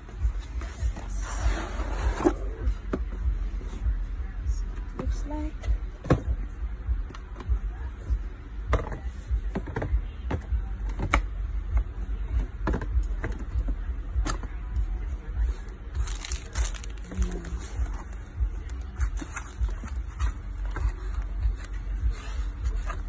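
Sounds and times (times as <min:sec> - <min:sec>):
plastic wrapper rustle: 0:16.0 - 0:17.6.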